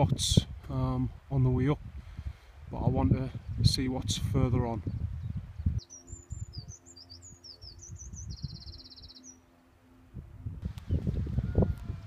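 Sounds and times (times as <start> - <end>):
wind on microphone: 0.0 - 9.2, 10.1 - 12.0
songbird chirping and trilling: 4.6 - 10.1.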